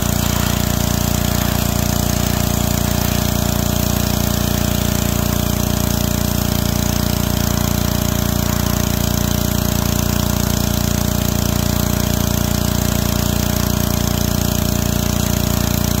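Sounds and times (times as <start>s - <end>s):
water jet hissing: 0.0s - 9.9s
pressure washer engine hum: 0.0s - 16.0s.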